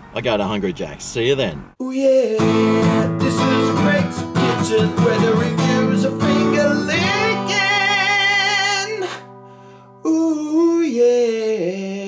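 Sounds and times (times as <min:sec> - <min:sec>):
person singing: 0:01.8 - 0:09.3, 0:10.0 - 0:12.0.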